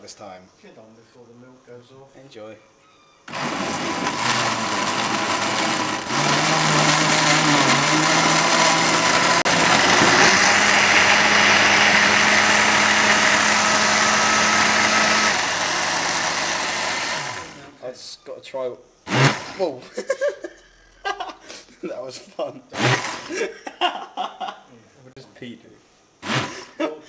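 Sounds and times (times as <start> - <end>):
blender chopping fruit: 3.3 - 17.7, 19.1 - 19.7, 22.8 - 23.4, 26.2 - 26.7.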